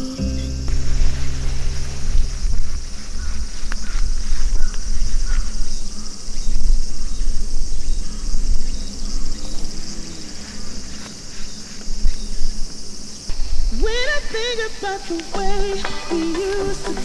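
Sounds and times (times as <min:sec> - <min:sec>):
low uneven rumble: 0:00.0 - 0:12.7
insects buzzing: 0:00.0 - 0:17.0.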